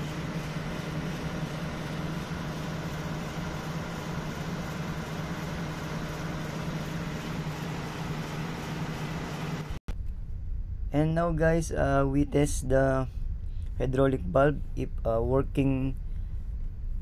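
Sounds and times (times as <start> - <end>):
ship machinery drone: 0.0 - 17.0.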